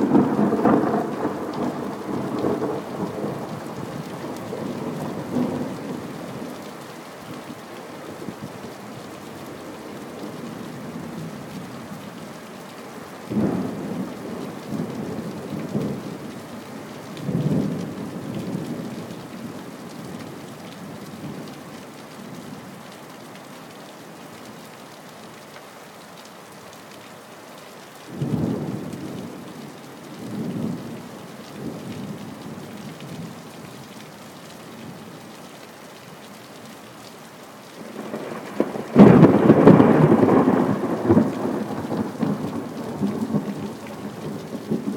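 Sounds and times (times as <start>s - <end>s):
thunder rumbling: 0.0s - 6.2s, 37.8s - 44.9s
steady rain: 0.0s - 44.9s.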